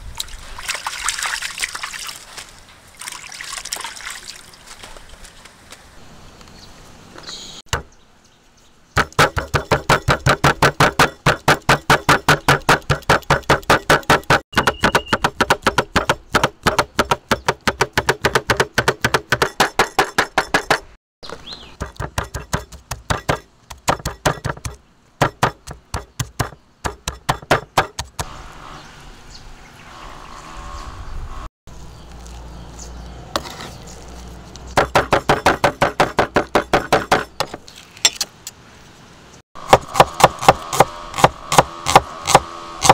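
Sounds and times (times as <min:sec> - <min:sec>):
cleaver chopping on wooden board: 0:09.0 - 0:21.0, 0:21.8 - 0:28.3, 0:34.8 - 0:37.6, 0:39.6 - 0:42.9.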